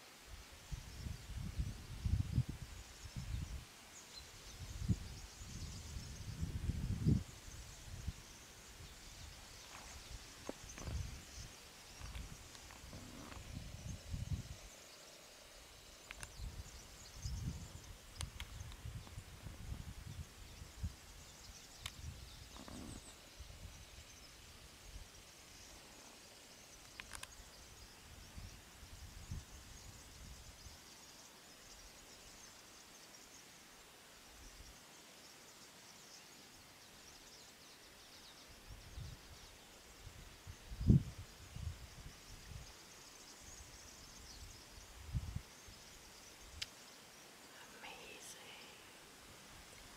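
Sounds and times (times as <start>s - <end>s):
faint high hiss: 0.0s - 49.9s
thin clicks: 16.1s - 16.4s.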